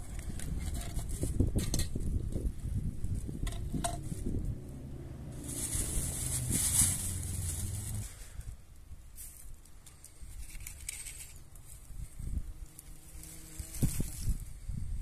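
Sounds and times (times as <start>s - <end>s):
plastic bag crinkling: 5.4s - 8.3s.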